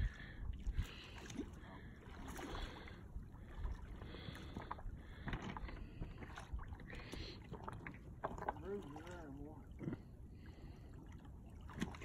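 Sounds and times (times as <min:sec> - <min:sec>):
wind rumble on microphone: 0:00.0 - 0:07.0
water splashing at shoreline: 0:00.0 - 0:12.0.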